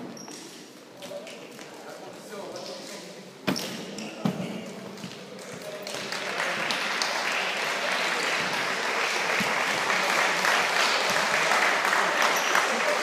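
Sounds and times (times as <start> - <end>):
applause: 5.4 - 13.0.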